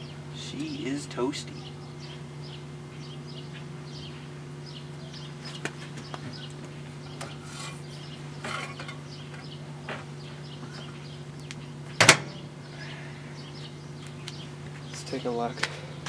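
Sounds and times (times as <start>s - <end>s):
microwave door shutting: 12.0s - 12.4s.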